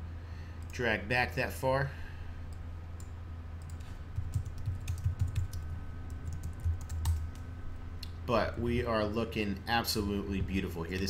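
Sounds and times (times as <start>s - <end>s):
computer keyboard typing: 3.0s - 7.4s.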